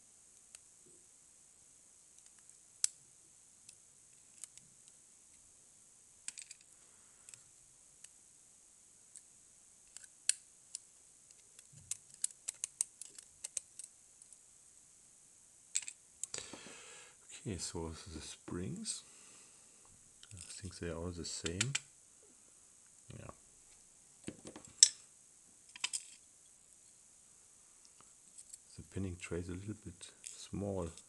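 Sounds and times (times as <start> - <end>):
small metallic clicks and taps: 9.9 - 14.4.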